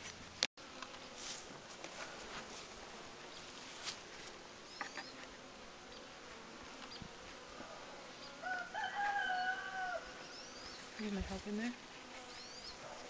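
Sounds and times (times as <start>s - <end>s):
honey bees buzzing: 0.1s - 13.0s.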